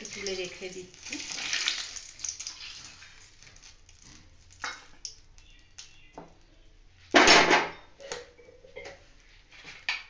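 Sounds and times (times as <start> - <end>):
frying oil hissing: 0.0 - 5.4.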